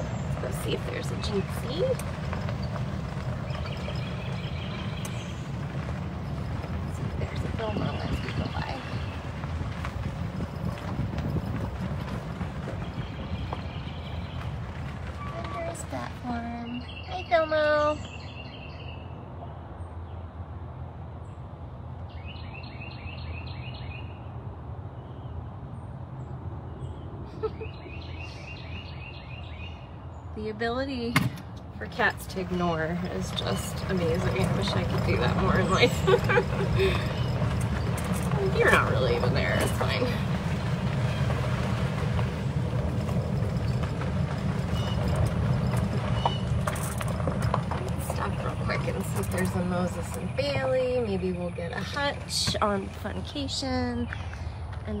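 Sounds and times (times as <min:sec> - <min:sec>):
bird chirping: 0:00.0 - 0:09.4, 0:12.6 - 0:14.6, 0:16.6 - 0:20.3, 0:22.0 - 0:24.3, 0:26.2 - 0:30.5, 0:44.6 - 0:46.8
low rumble: 0:00.0 - 0:17.1, 0:31.6 - 0:54.5.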